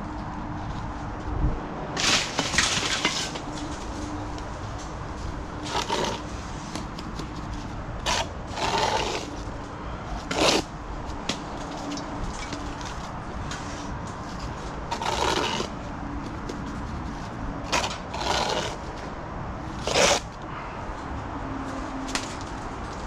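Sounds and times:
trowel scraping mortar on bricks: 5.6 - 9.4, 10.2 - 10.7, 13.6 - 19.0, 19.8 - 20.4.

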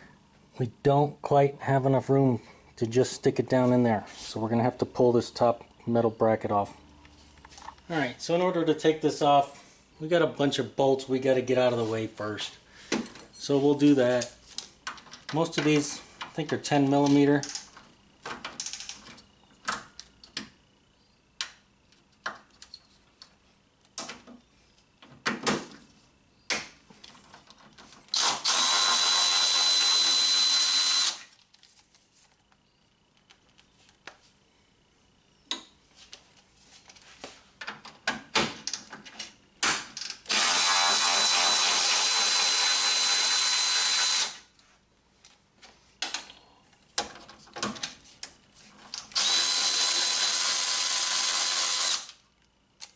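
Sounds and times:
electric ratchet running: 28.1 - 31.3, 40.0 - 44.5, 48.9 - 52.2.

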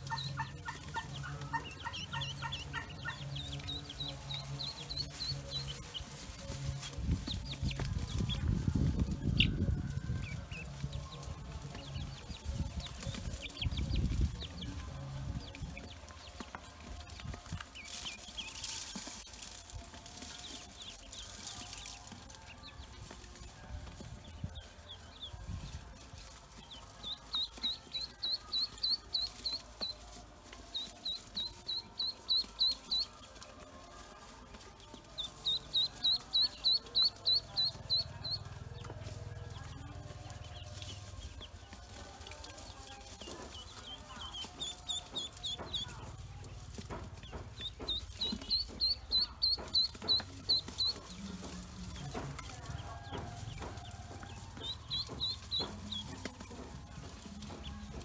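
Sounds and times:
ducklings peeping: 0.0 - 58.0.

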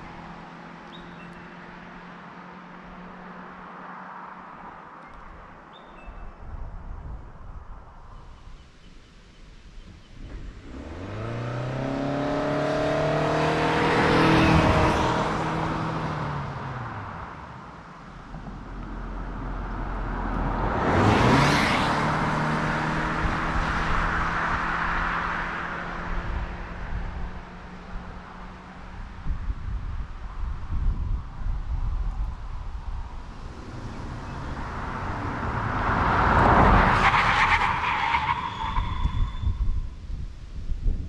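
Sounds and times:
car engine accelerating: 10.2 - 29.2, 32.2 - 39.2
car passing by: 10.6 - 26.8, 32.9 - 39.2
tyre and wind noise: 18.2 - 41.0.

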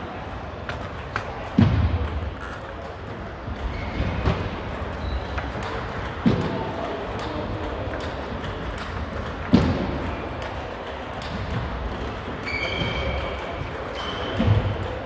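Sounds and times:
murmur of voices: 0.0 - 15.0
table tennis balls clicking: 0.2 - 1.4, 4.5 - 12.4.

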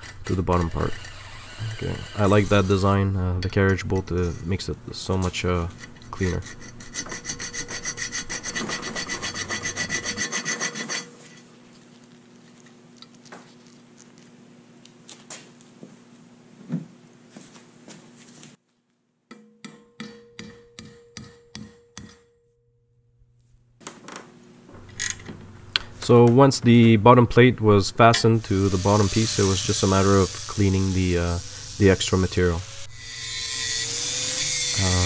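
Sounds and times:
file rasping on steel: 0.0 - 3.0, 5.6 - 11.5, 28.4 - 35.0.

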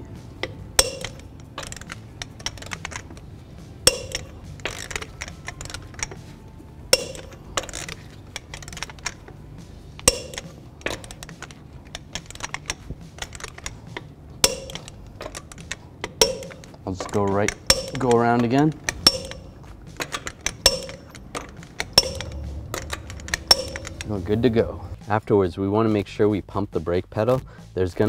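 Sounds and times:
metal clinks: 0.0 - 24.4
torque wrench clicks: 0.4 - 3.3, 3.9 - 6.3, 6.9 - 9.4, 10.0 - 24.2
ratchet ticking: 0.4 - 6.3, 6.9 - 9.4, 10.0 - 24.4.

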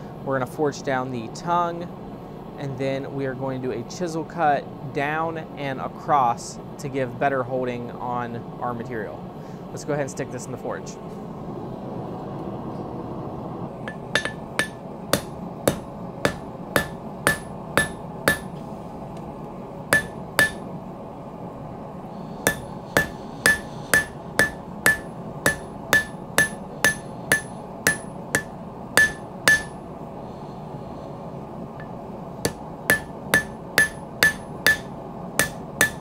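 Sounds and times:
hammer forging steel on anvil: 13.8 - 18.6, 19.9 - 20.7, 22.4 - 29.8, 31.8 - 36.0
anvil ringing ping: 13.9 - 18.5, 19.9 - 20.6, 22.4 - 29.8, 32.5 - 36.0.

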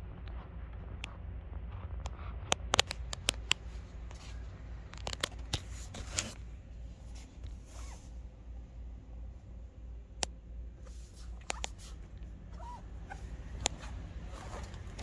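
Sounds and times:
steady low hum: 0.0 - 15.0
light rubbing: 2.7 - 8.3, 10.8 - 15.0.

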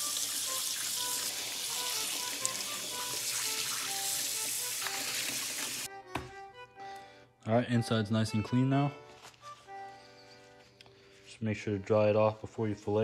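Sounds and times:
tap water running into sink: 0.0 - 5.9
soft background music: 0.0 - 13.0.

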